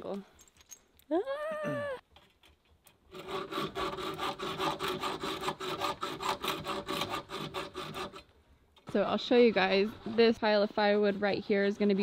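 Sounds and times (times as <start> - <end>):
hand tool scraping wood: 2.1 - 8.3, 8.9 - 12.0.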